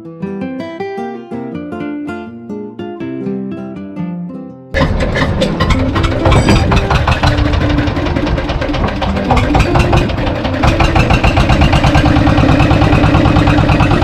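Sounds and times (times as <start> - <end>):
boat engine pulsing: 4.8 - 14.0.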